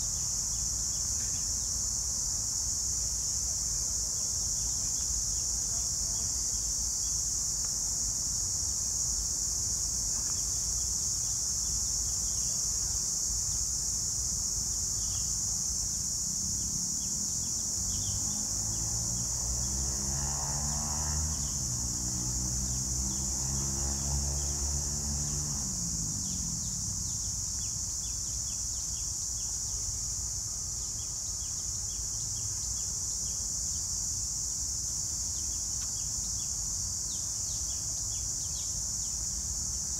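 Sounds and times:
cicadas droning: 0.0 - 39.9
motor engine passing: 17.8 - 27.2.

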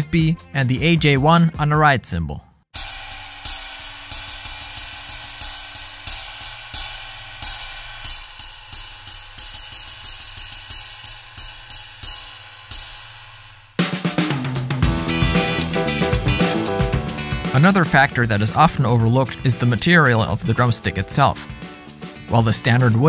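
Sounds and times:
background music: 0.0 - 1.8, 13.8 - 23.0
ride cymbal played with drumsticks: 2.8 - 17.6.

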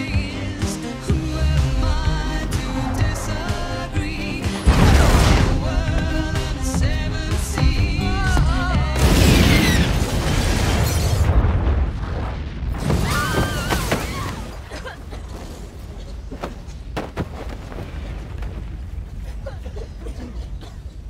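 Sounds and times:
explosion boom: 3.0 - 6.3, 8.9 - 13.6
debris shattering: 4.6 - 6.1, 8.9 - 15.8.

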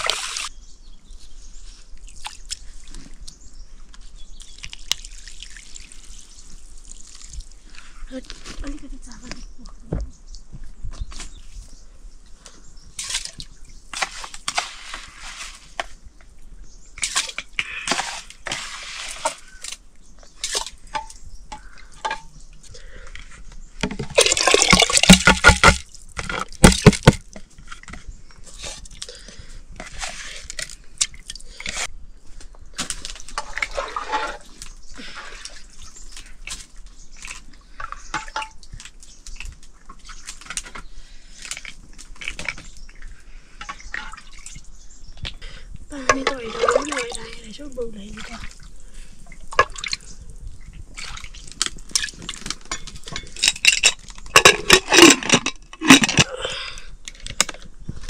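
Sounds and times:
water splashing and dripping: 0.0 - 0.5, 4.6 - 7.9, 17.0 - 19.8, 23.8 - 27.5, 32.8 - 40.8, 45.9 - 55.1.

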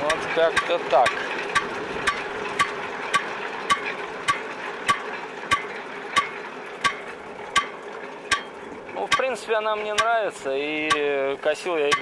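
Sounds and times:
mower drum metallic ticks: 0.0 - 12.0.

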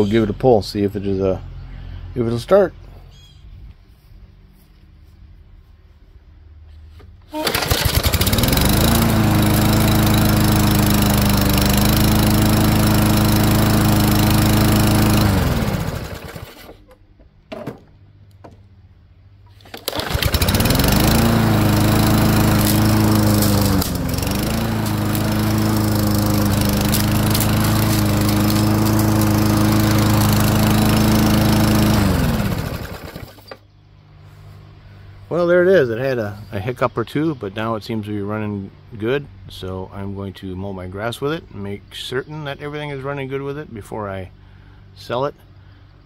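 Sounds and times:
lawn mower engine running: 7.0 - 18.0, 19.2 - 33.7.

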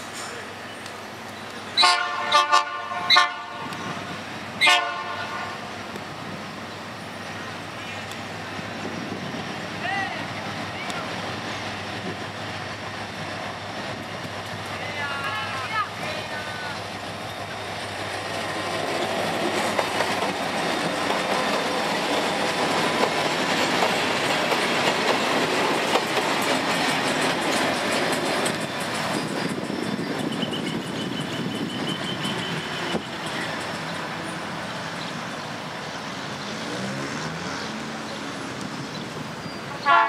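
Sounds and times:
diesel locomotive passing: 0.0 - 40.0
wheels clicking over rail joints: 17.0 - 34.4.

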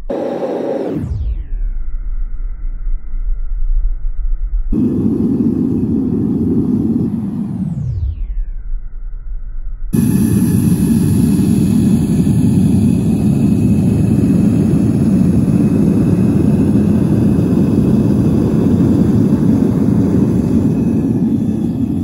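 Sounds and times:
propane burner roaring: 0.1 - 1.0, 4.8 - 7.8, 10.0 - 22.0.

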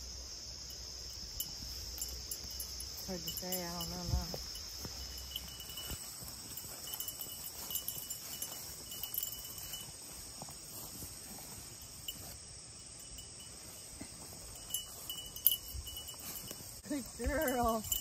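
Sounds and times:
crickets and katydids chorus: 0.0 - 18.0
rustling through weeds: 4.2 - 18.0.

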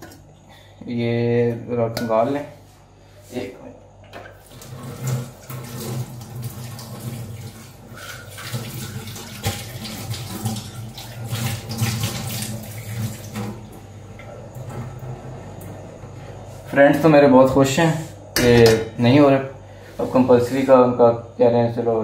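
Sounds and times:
tap water running into sink: 4.2 - 15.8.

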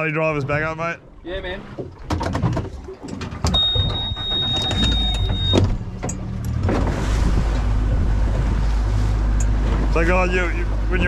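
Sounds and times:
boat motor running: 0.0 - 11.0
rushing water: 0.0 - 11.0
high electronic beep: 3.5 - 5.7
wind noise: 6.6 - 9.3.

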